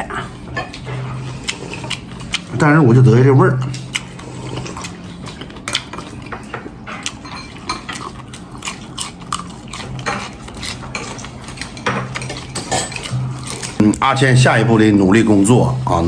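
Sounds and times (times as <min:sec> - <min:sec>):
person chewing close up: 0:00.0 - 0:14.2.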